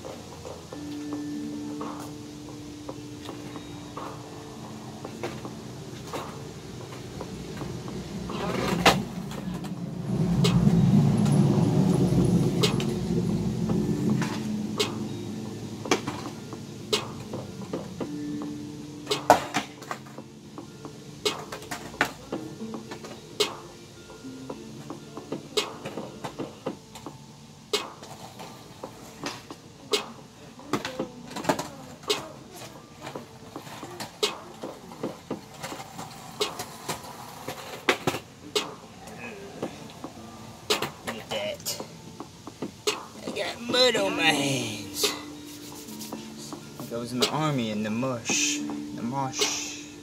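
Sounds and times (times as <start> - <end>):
skateboard wheels rolling on concrete: 0.0 - 50.0
skateboard clacks: 4.9 - 23.8, 24.4 - 45.3
skateboard deck popping and slapping: 5.2 - 9.8, 33.2 - 38.8, 40.7 - 41.4.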